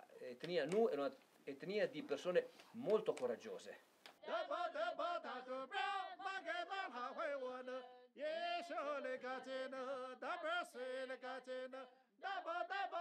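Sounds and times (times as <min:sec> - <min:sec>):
man singing unaccompanied: 0:04.2 - 0:13.0.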